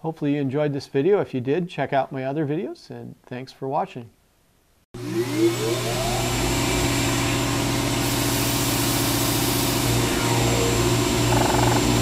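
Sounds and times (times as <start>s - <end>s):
electric motor humming: 5.0s - 12.0s.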